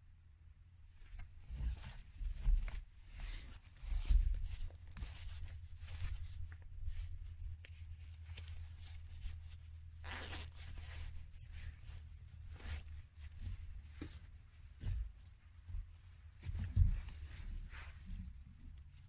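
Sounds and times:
rustling: 0:00.8 - 0:19.0.

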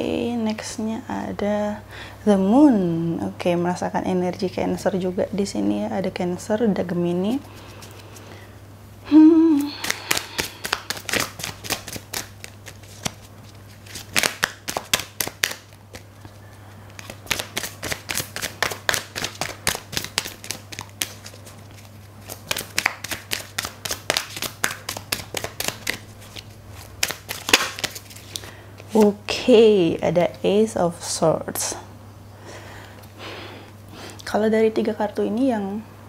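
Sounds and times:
cards being shuffled: 0:09.6 - 0:29.2.

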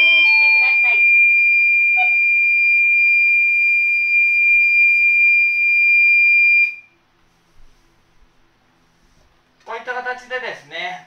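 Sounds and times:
high-pitched fire alarm tone: 0:00.0 - 0:06.9.

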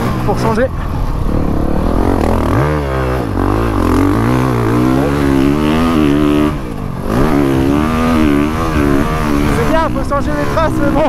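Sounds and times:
motorbike engine revving: 0:00.0 - 0:11.0.

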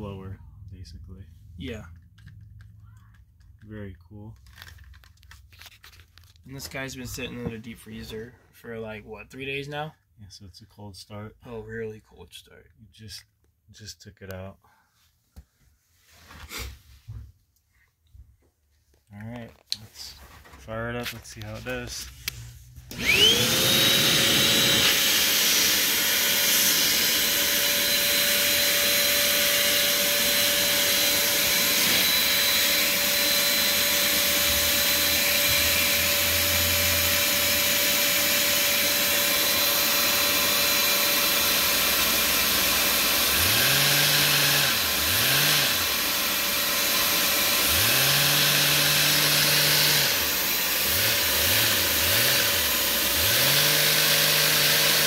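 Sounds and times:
small engine revving: 0:22.9 - 0:55.0
vacuum cleaner motor whining: 0:22.9 - 0:55.0.

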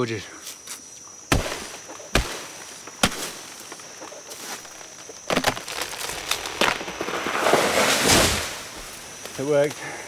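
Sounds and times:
insect drone: 0:00.0 - 0:10.0
plant trunk cracking and snapping: 0:04.6 - 0:08.5.

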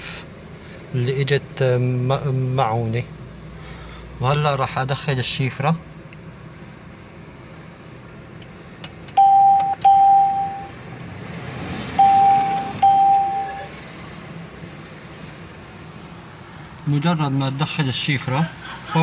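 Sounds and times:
short electronic beeps: 0:09.2 - 0:10.7, 0:12.0 - 0:13.7.

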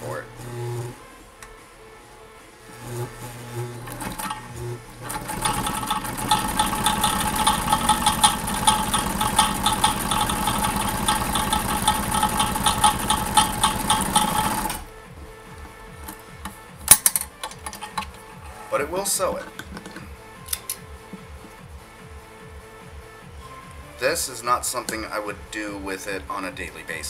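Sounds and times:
sewing machine stitching leather: 0:02.8 - 0:14.9.

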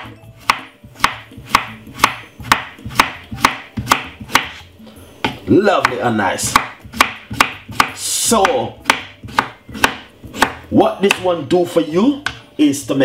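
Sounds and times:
knife slicing on wooden board: 0:00.4 - 0:04.7.

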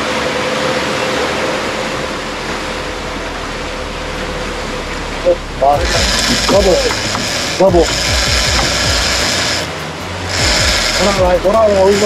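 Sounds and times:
faint hum: 0:00.0 - 0:09.6
wind and water rushing: 0:00.0 - 0:11.8.

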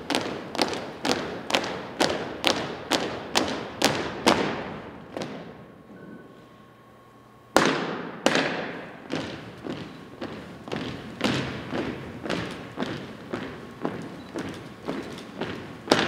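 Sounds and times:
stamping and slapping on gym floor: 0:07.6 - 0:14.0.

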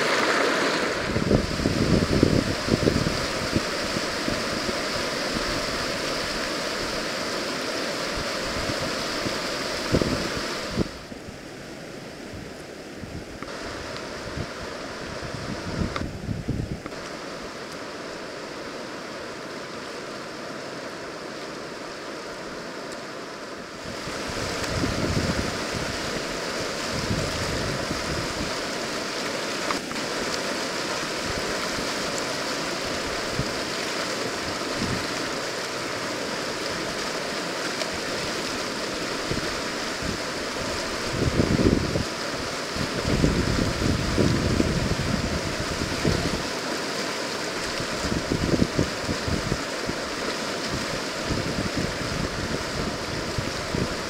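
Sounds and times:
river whitewater rushing: 0:00.0 - 0:54.0
wind buffeting microphone: 0:00.9 - 0:07.0, 0:08.2 - 0:11.1, 0:13.0 - 0:17.0, 0:23.8 - 0:28.7, 0:34.4 - 0:35.2, 0:39.2 - 0:42.1, 0:42.7 - 0:46.4, 0:47.7 - 0:54.0.

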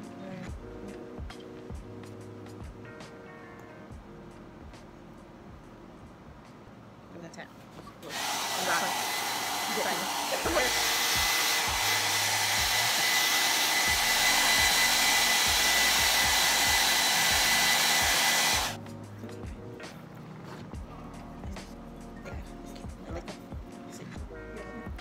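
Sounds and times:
hair dryer blowing: 0:08.0 - 0:18.8.

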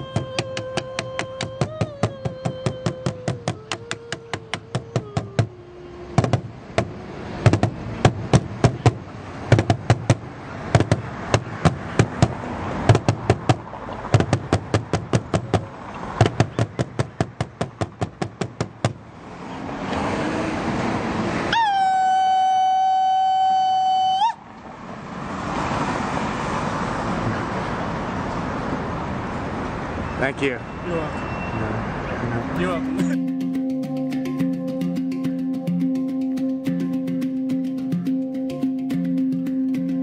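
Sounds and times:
large drum beaten fast: 0:06.2 - 0:19.0.

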